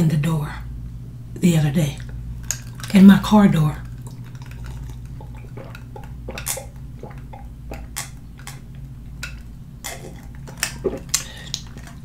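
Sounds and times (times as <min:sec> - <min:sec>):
steady low hum: 0:00.0 - 0:12.0
person swallowing: 0:04.0 - 0:08.6, 0:09.8 - 0:11.9.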